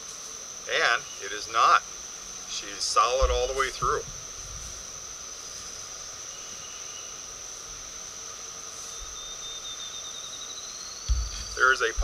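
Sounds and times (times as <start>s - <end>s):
faint outdoor hiss: 0.0s - 12.0s
insect chorus drone: 0.0s - 12.0s.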